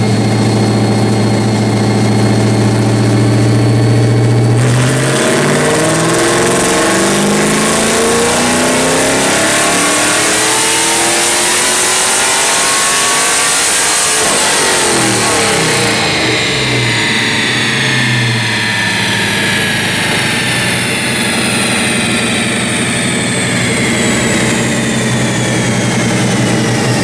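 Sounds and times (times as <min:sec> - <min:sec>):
car engine revving then idling lumpy: 0:00.0 - 0:27.0
high whine of rollers spinning: 0:00.0 - 0:27.0.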